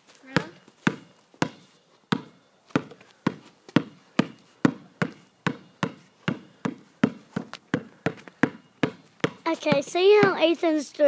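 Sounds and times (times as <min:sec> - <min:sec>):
basketball bouncing on concrete: 0:00.3 - 0:10.6.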